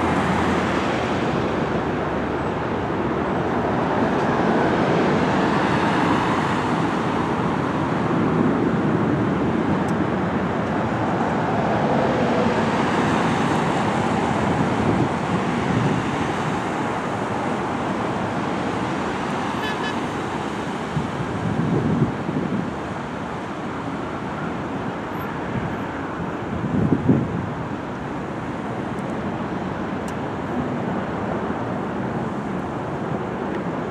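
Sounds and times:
jet engine roar: 0.0 - 22.1.

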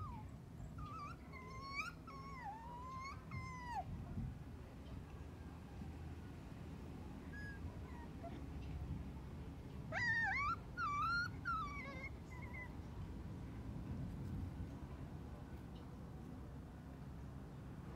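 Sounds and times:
puppy whining and yelping: 0.0 - 3.9, 7.3 - 8.5, 9.9 - 12.8
faint puppy squeaks: 0.0 - 4.0, 7.2 - 8.6, 9.9 - 12.9.

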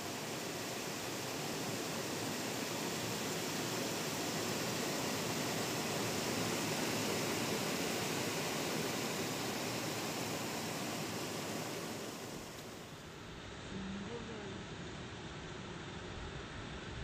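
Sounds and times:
river water rushing over rocks: 0.0 - 13.0.

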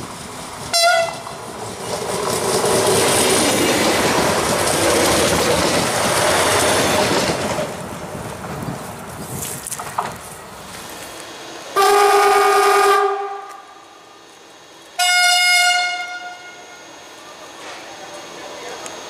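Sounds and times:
rail noise: 0.0 - 19.0
locomotive horn blasts: 0.7 - 1.2, 11.8 - 13.8, 15.0 - 16.8.

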